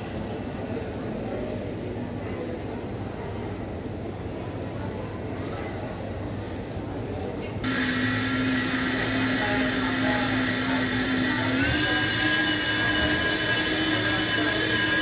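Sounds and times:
jet turbine whine: 7.6 - 15.0.

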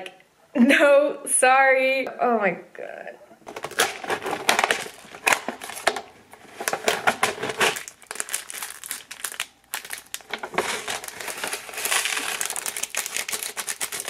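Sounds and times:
plastic packets crinkling: 3.4 - 14.0.

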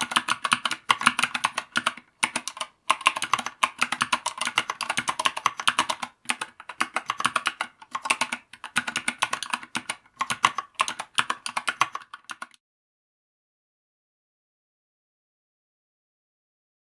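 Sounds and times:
mechanical keyboard typing: 0.0 - 12.6.

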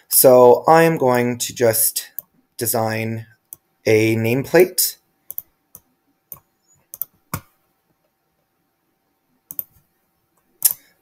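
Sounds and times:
computer mouse clicks: 5.3 - 7.5, 9.5 - 9.8.

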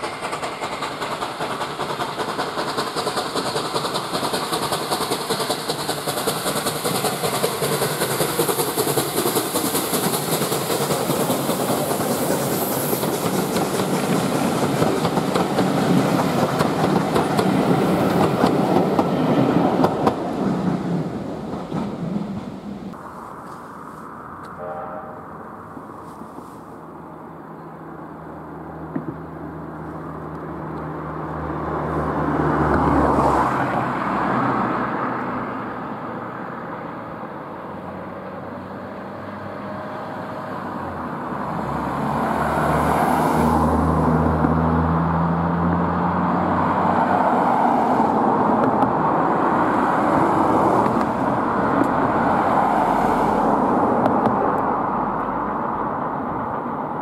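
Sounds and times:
distant steam locomotive exhaust: 0.0 - 20.2, 22.1 - 26.9.

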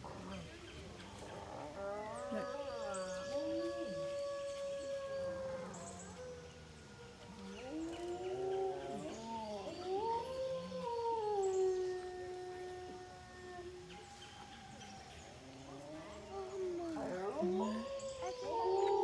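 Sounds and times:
wolves howling in chorus: 0.0 - 19.0.

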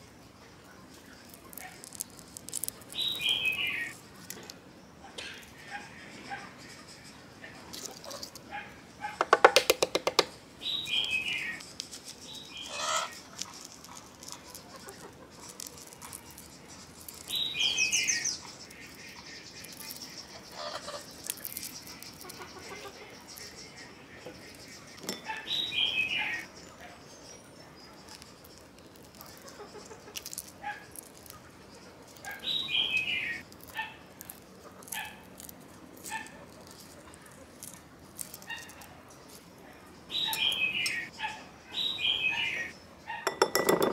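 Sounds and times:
small crackle: 0.6 - 4.6, 7.7 - 8.5, 11.4 - 23.6, 27.8 - 39.6
bird chirping: 0.8 - 4.2, 5.0 - 35.2, 38.4 - 43.8
eggshells cracking clicks: 1.2 - 3.6, 9.2 - 10.4, 11.6 - 18.1, 18.8 - 20.2, 21.0 - 22.6, 28.1 - 39.5.

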